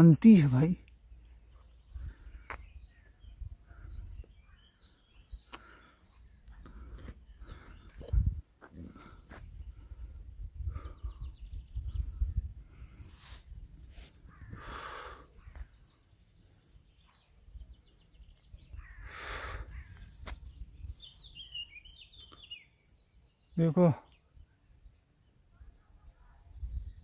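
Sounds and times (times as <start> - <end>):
cricket chirping: 0.0 - 27.0
wind on microphone: 8.0 - 8.5, 9.5 - 14.6.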